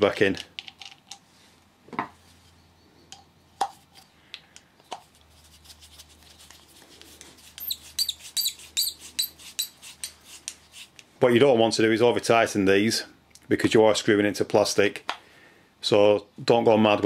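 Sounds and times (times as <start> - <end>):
screw squeaking into plastic: 7.5 - 9.8.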